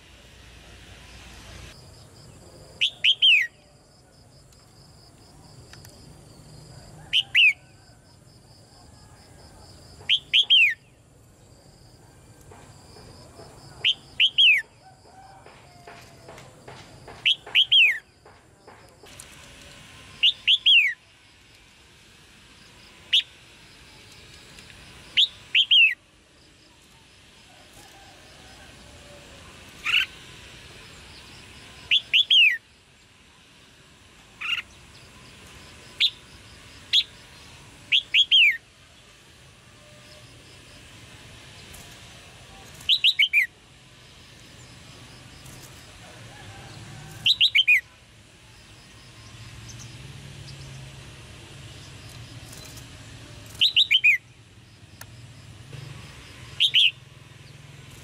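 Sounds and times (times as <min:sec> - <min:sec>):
bird chirping calls: 0:02.7 - 0:03.8, 0:10.0 - 0:11.0, 0:13.7 - 0:14.9, 0:15.9 - 0:18.4, 0:20.2 - 0:21.0, 0:25.2 - 0:26.0, 0:31.2 - 0:32.6, 0:36.9 - 0:38.6, 0:42.7 - 0:43.5, 0:47.2 - 0:47.9, 0:53.5 - 0:54.3, 0:56.5 - 0:57.6.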